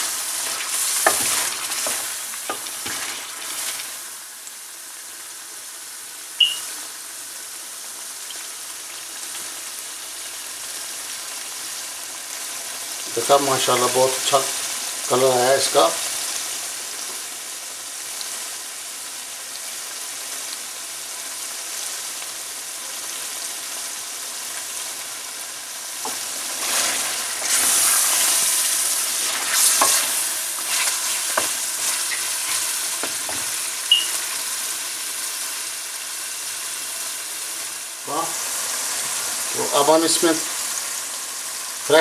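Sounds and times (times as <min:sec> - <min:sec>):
meat sizzling in oil: 0:00.0 - 0:42.0
spatula scraping a pan: 0:00.4 - 0:03.8, 0:26.1 - 0:33.6.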